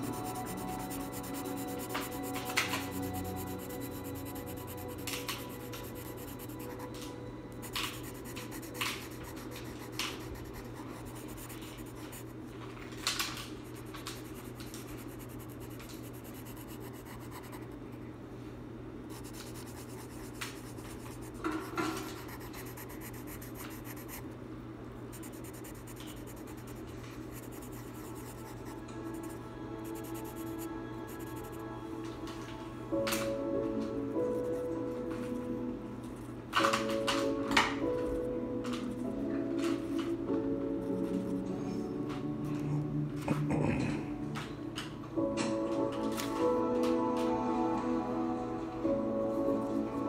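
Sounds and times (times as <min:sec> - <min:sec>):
marker scratching on paper: 0:00.0 - 0:07.0, 0:07.6 - 0:12.5, 0:13.6 - 0:17.8, 0:19.1 - 0:24.2, 0:25.2 - 0:31.6
steady low hum: 0:00.0 - 0:36.6.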